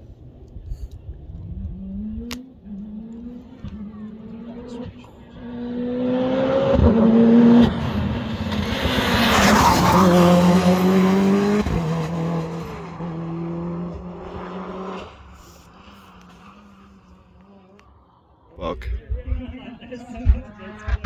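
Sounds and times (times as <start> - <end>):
race car engine revving: 1.4 - 17.9.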